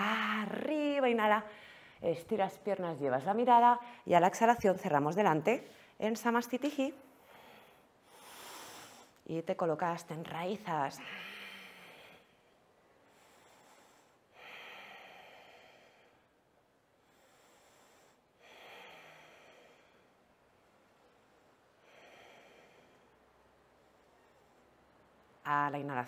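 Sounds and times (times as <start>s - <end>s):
person breathing slowly: 7.1s - 9.2s, 11.0s - 25.1s.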